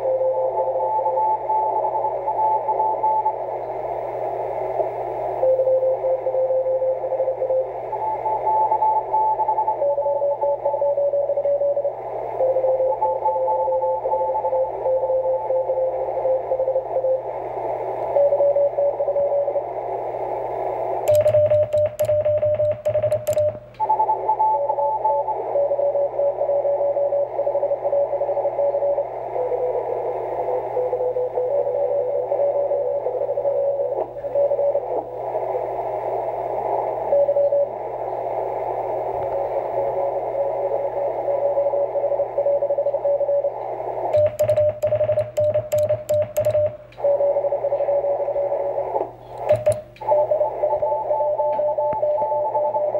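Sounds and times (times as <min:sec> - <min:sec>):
morse code signals: 0:00.0 - 0:03.5, 0:05.4 - 0:17.4, 0:21.1 - 0:35.0, 0:41.1 - 0:52.9
radio band hiss: 0:00.0 - 0:05.4, 0:10.5 - 0:12.6, 0:14.0 - 0:52.9
rapid sharp clicks over steady tone: 0:21.0 - 0:25.3, 0:43.9 - 0:47.2, 0:48.9 - 0:52.9.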